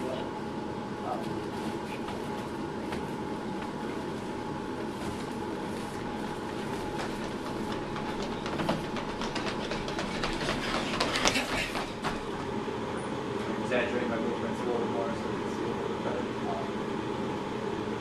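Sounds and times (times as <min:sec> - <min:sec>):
background hum: 0:00.0 - 0:18.0
running footsteps on tiled floor: 0:02.0 - 0:12.6.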